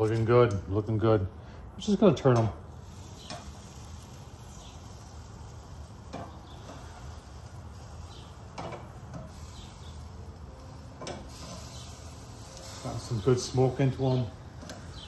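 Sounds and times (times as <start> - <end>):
metal tongs clicking on grill grate: 0.0 - 0.7, 2.2 - 2.6, 3.2 - 3.9, 6.0 - 7.2, 8.5 - 9.5, 10.3 - 11.9, 14.1 - 15.0.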